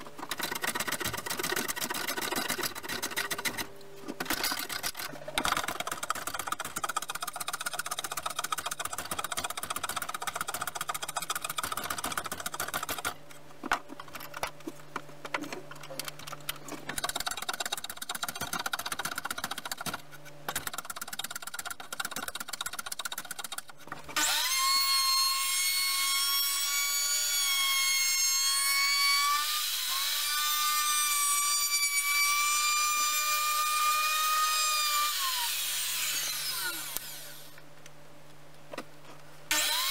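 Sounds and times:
hand plane shaving wood: 0.2s - 3.7s.

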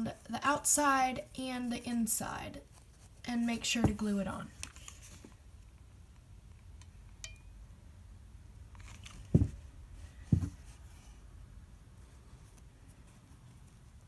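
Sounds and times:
rustling of craft materials: 0.0s - 5.9s, 8.7s - 14.0s
dull thumps: 3.6s - 4.4s, 9.2s - 10.8s.

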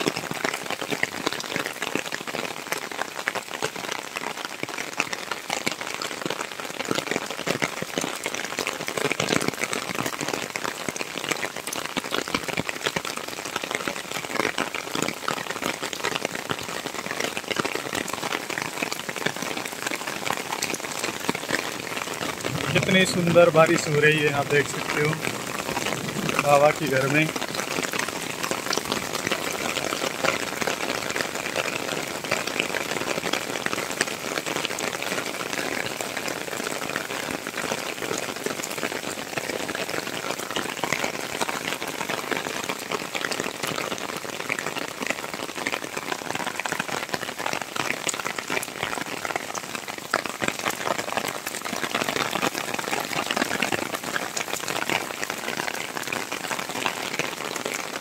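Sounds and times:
rain falling on wet paving: 0.0s - 58.0s.

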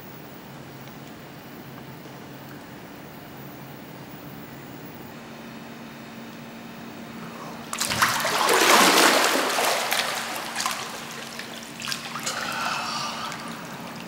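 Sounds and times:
water splashing from swimmer: 7.7s - 14.0s.

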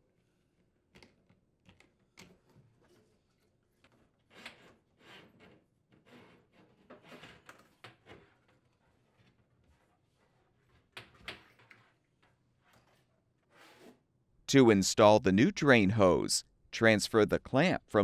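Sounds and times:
plastic hose scraping and rustling: 11.5s - 14.0s.

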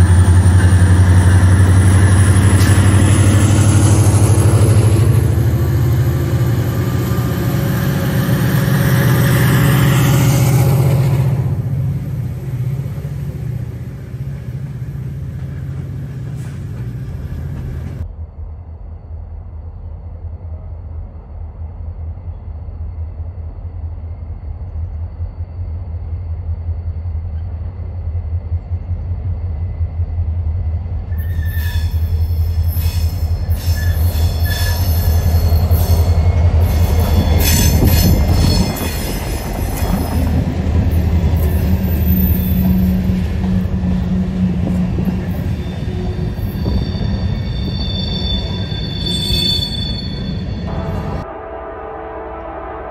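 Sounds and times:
diesel locomotives rumbling: 0.0s - 52.9s
steel wheels squealing: 31.1s - 50.7s.

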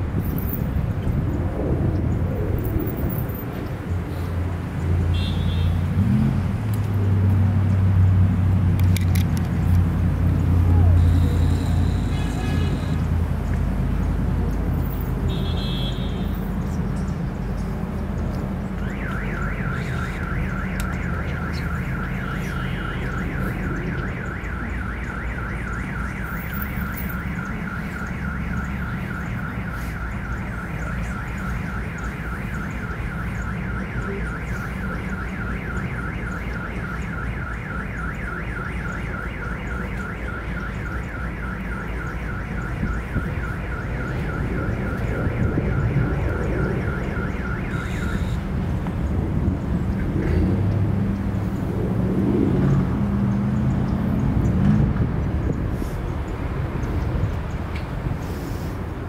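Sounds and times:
distant traffic: 0.0s - 59.0s
wind: 0.0s - 59.0s
car alarm warbling: 18.7s - 48.7s.

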